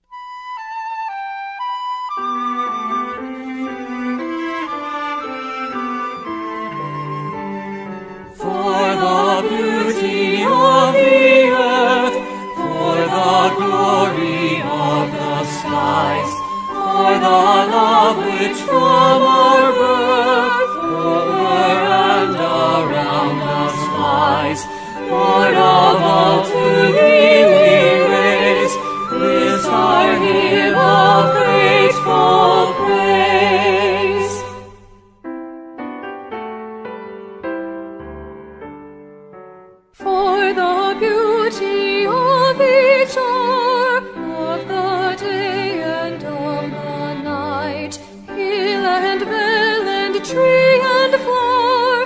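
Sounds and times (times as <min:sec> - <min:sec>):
choir singing a hymn: 0:08.2 - 0:34.9, 0:40.2 - 0:52.0.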